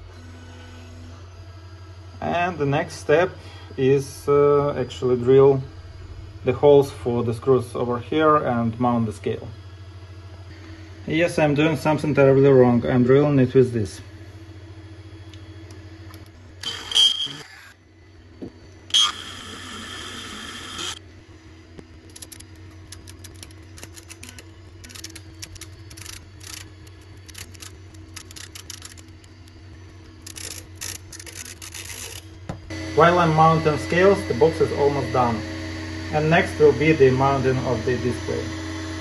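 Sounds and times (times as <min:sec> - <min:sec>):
rotary tool whirring: 0:16.2 - 0:17.8, 0:18.6 - 0:21.0, 0:22.0 - 0:39.0.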